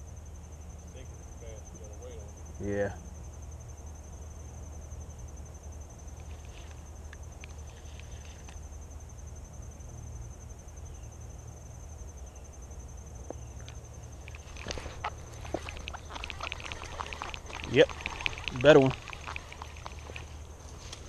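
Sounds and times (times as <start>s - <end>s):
insect trilling: 0.1s - 21.0s
sharp clicks: 13.6s - 20.4s.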